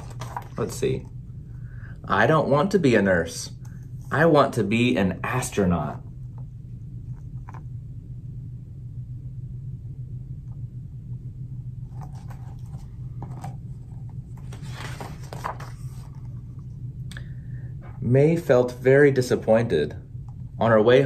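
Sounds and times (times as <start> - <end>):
paper rustling: 0.0 - 1.0, 11.9 - 16.4
steady low hum: 0.0 - 21.0.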